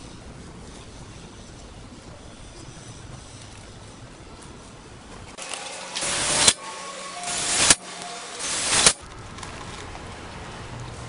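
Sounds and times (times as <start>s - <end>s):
cordless drill driving screws into steel: 5.4s - 9.0s.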